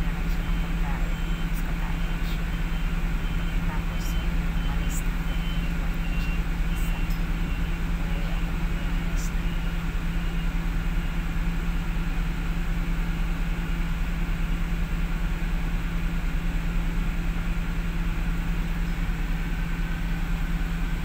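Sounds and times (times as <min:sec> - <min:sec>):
bus engine and road drone: 0:00.0 - 0:21.0.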